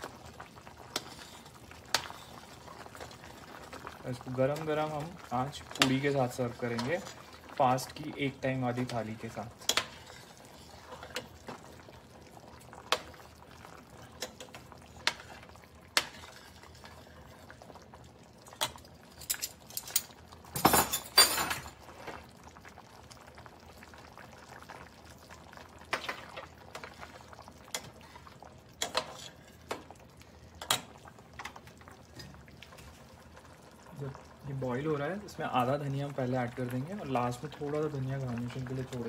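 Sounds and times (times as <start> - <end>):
curry simmering with bubble pops: 0.0 - 39.0
metal spatula scraping a pan: 0.9 - 2.5, 9.6 - 11.3, 16.0 - 17.3, 28.8 - 29.6.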